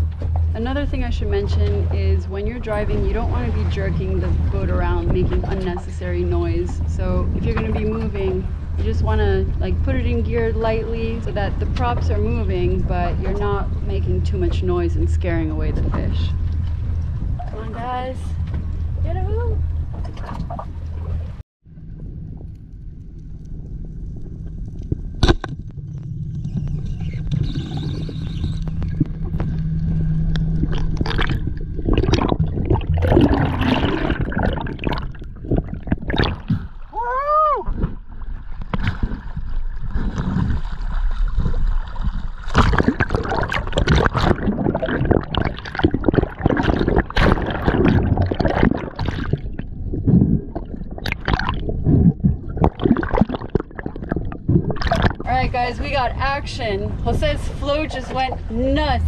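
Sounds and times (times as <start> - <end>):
low rumble: 0.0 - 59.0
seawater sloshing and gurgling: 0.0 - 59.0
water splashes and bubbling: 0.0 - 59.0.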